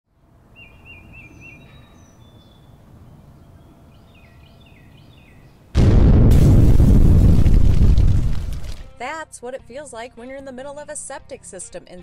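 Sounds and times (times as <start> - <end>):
birds chirping faintly: 0.4 - 5.7
rumbling explosion: 5.8 - 8.8.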